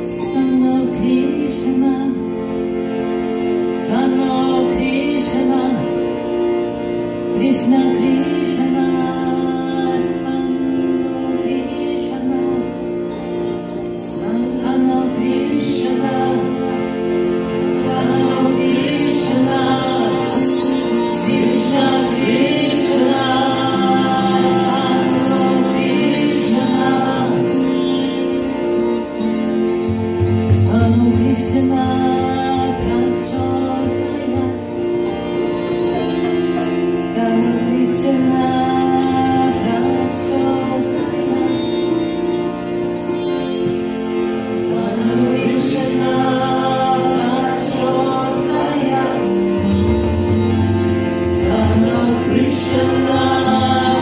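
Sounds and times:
women singing: 0:00.0 - 0:02.6, 0:03.7 - 0:06.5, 0:07.2 - 0:28.6, 0:30.6 - 0:35.2, 0:36.6 - 0:42.6, 0:43.7 - 0:54.0
cello: 0:00.0 - 0:54.0
sitar: 0:00.0 - 0:54.0
shimmering high rattle: 0:18.8 - 0:28.2, 0:42.7 - 0:50.6.

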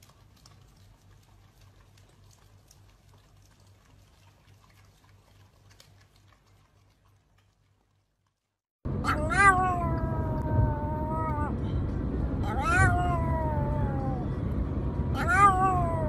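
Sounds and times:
dog howling: 0:09.0 - 0:11.5, 0:12.4 - 0:14.3, 0:15.1 - 0:16.0.

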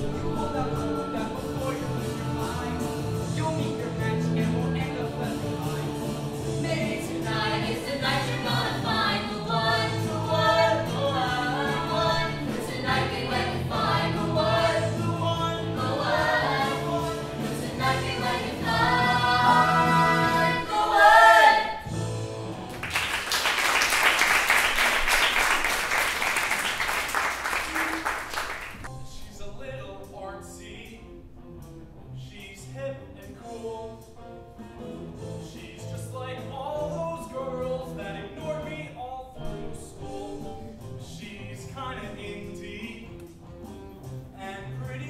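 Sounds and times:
cast singing together: 0:00.0 - 0:03.8, 0:05.0 - 0:21.8
piano and band accompaniment: 0:00.0 - 0:45.0
audience applause: 0:22.7 - 0:28.9.

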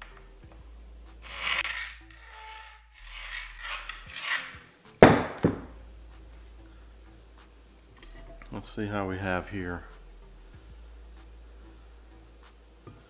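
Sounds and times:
fork scraping frying pan: 0:01.2 - 0:04.6.

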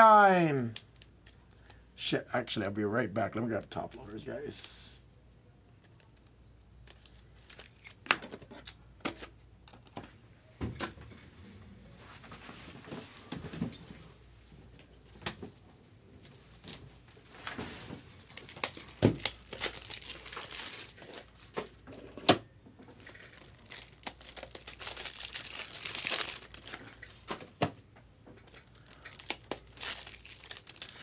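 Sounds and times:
plastic packaging crinkling and tearing: 0:06.8 - 0:08.8, 0:17.4 - 0:21.7, 0:22.9 - 0:27.4, 0:28.5 - 0:31.0.

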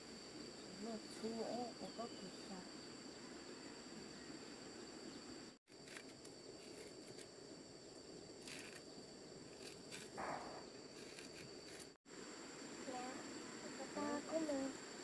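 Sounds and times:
insect chirring: 0:00.0 - 0:15.0
blade scraping corn cob: 0:05.7 - 0:07.3, 0:08.4 - 0:08.9, 0:09.5 - 0:12.0.

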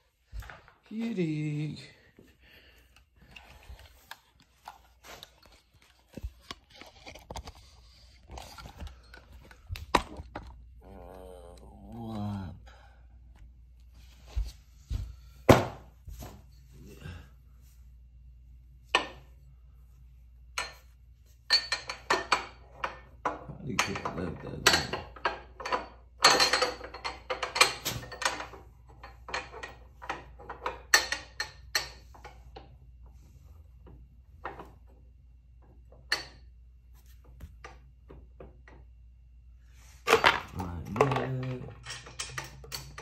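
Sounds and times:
hard parts clicking and clattering: 0:21.5 - 0:32.8, 0:40.0 - 0:43.0.

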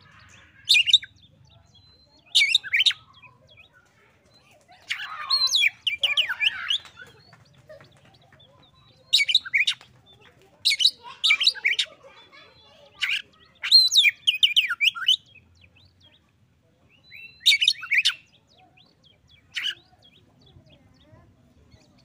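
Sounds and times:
bird singing whistled notes: 0:16.9 - 0:19.0.

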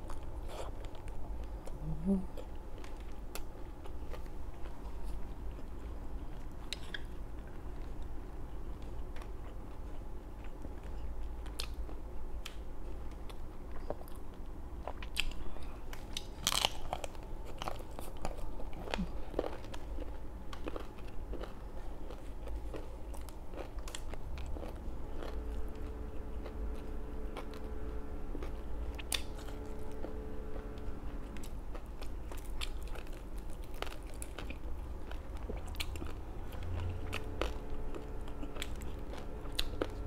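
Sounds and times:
crunchy bites and chewing: 0:14.8 - 0:40.0.

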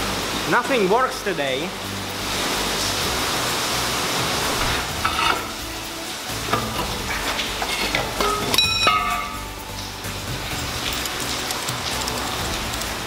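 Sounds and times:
steel bar clanking on metal: 0:04.6 - 0:05.6, 0:06.4 - 0:09.6
ringing metal clang: 0:07.7 - 0:09.6.

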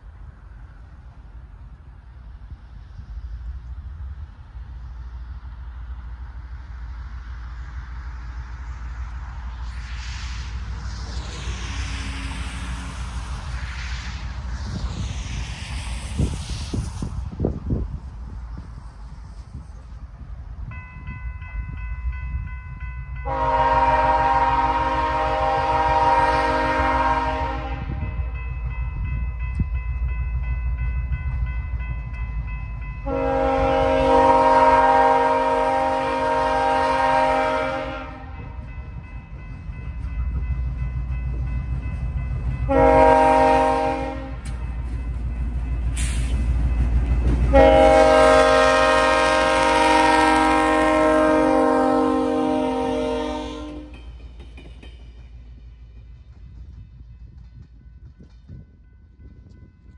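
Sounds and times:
diesel engine and train rumble: 0:00.0 - 0:59.9
locomotive air horn blasts: 0:23.2 - 0:28.0, 0:33.0 - 0:38.6, 0:42.7 - 0:44.5, 0:47.5 - 0:53.9.

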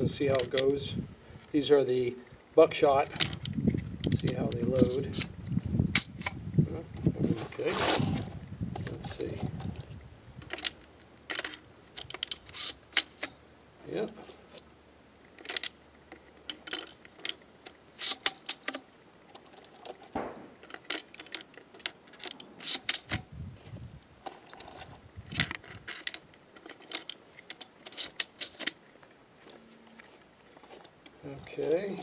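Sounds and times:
handling thumps: 0:20.1 - 0:21.0.

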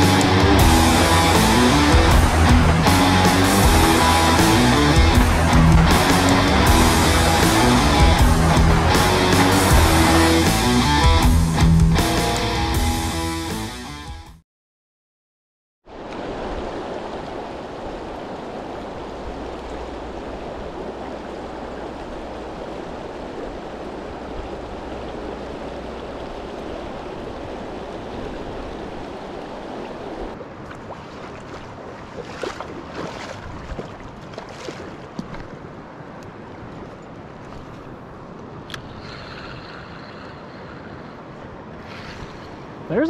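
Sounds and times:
fast-flowing river rushing: 0:00.0 - 0:11.2, 0:15.9 - 0:35.1.

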